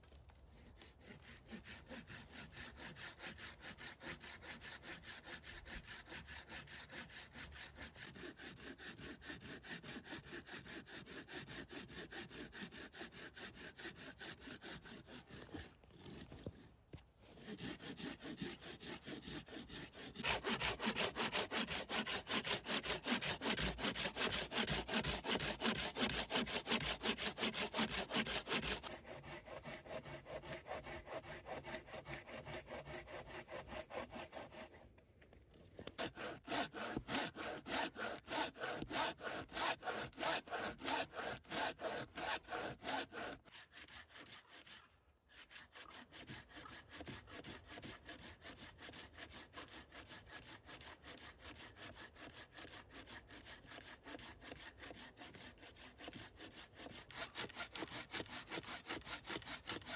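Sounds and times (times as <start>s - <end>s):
hand saw cutting wood: 0.0s - 35.0s, 35.8s - 59.9s.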